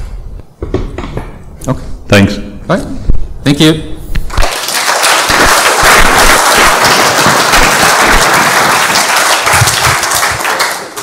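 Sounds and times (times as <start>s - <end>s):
audience applauding: 4.3s - 11.0s.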